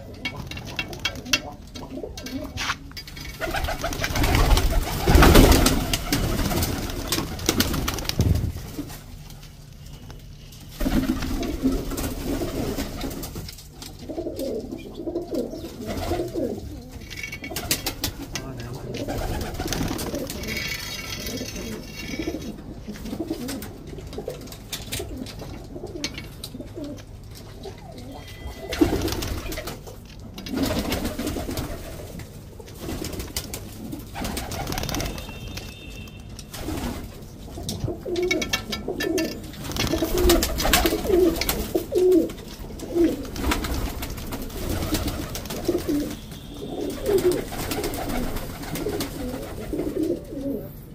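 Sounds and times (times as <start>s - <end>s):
pigeons cooing: 0.0s - 9.2s, 10.2s - 50.9s.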